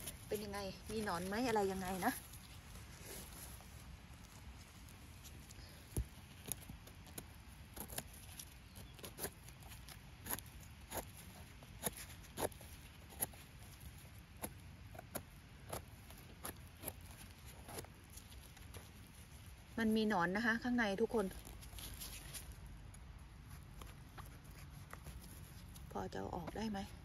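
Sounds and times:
knife cutting mushroom stem: 5.6s - 19.0s.

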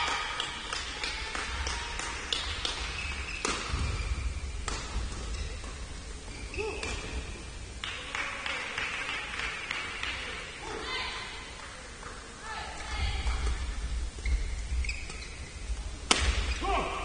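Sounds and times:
rackets striking shuttlecock: 0.4s - 4.0s, 4.6s - 6.0s, 16.0s - 16.6s.

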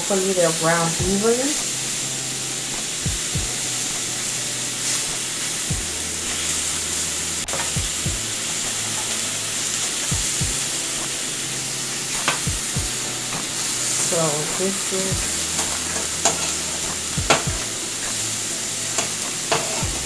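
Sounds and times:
lemon slices sizzling in pan: 0.0s - 20.0s
metal spatula stirring in pan: 13.2s - 20.0s.

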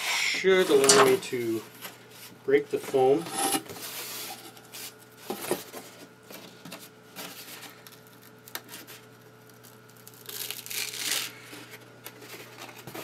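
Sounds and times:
paper crinkling: 6.3s - 13.0s
foam core cracking: 7.3s - 13.0s.

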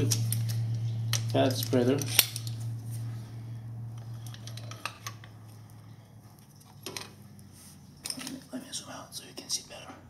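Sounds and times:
sharp metal clicks: 0.0s - 2.6s
steady low hum: 0.0s - 10.0s.

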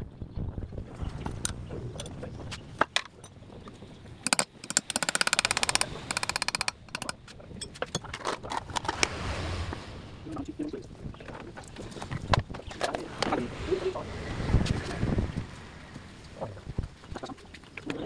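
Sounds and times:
fast rattle of clicks: 4.2s - 8.8s
metal clicks and knocks: 4.2s - 9.0s.

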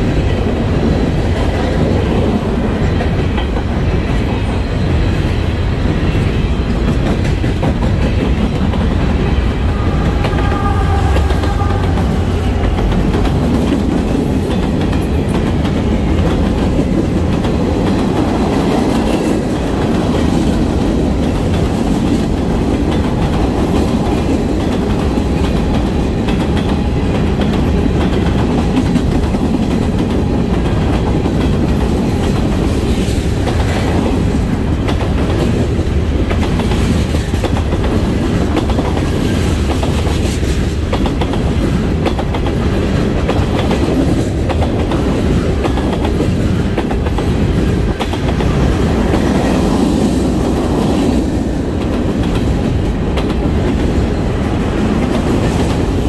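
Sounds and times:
locomotive passing: 0.0s - 23.7s
freight train cars rumbling on rails: 0.0s - 56.0s.

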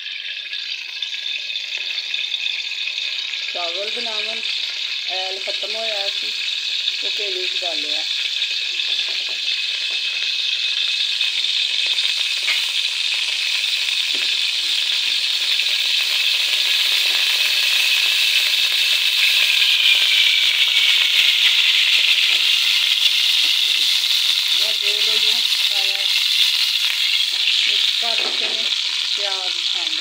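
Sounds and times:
oil sizzling in a hot pot: 0.0s - 30.0s.

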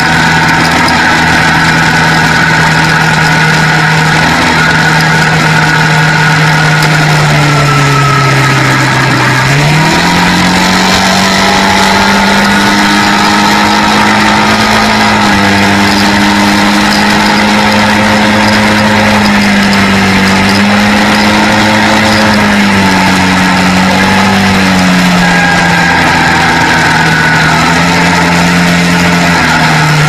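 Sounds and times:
quad bike engine running: 0.0s - 30.0s.

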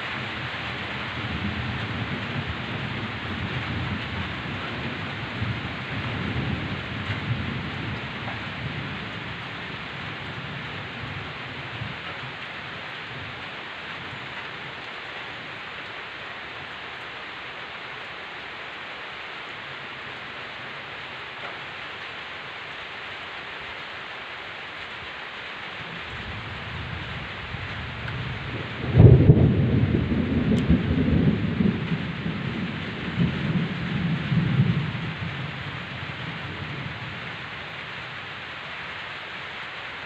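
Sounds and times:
heavy rain: 0.0s - 40.0s
thunder rumbling: 25.8s - 37.7s.

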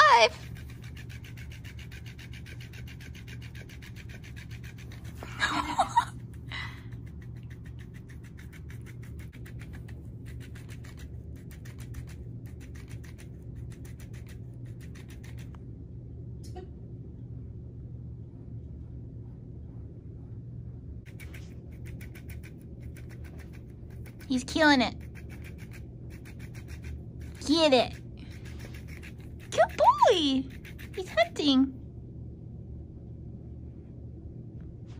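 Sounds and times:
toy motor ticking rattle: 21.1s - 23.4s, 24.0s - 31.4s.

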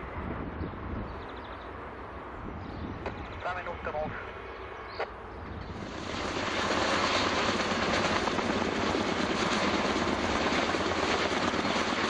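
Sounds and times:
helicopter rotors and turbine: 0.0s - 12.0s.

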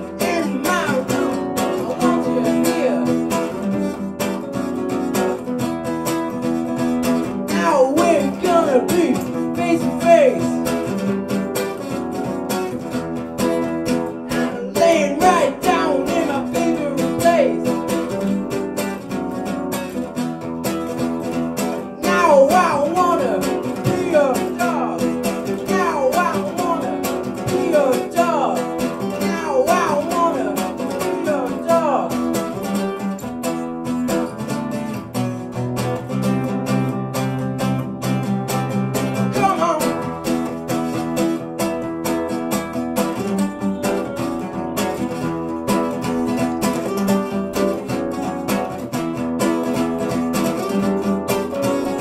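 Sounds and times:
man singing: 0.0s - 4.1s, 6.7s - 11.4s, 12.8s - 18.9s, 21.3s - 34.1s, 39.0s - 41.1s
acoustic guitar strumming: 0.0s - 52.0s.

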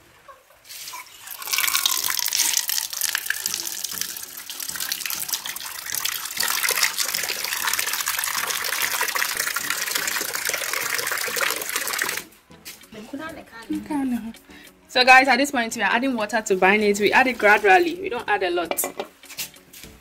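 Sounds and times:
water pouring into plastic bowl: 1.1s - 12.3s.

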